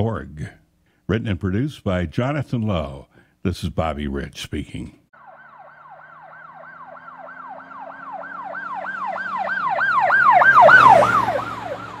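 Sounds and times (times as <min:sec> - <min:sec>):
siren yelping: 0:05.2 - 0:12.0.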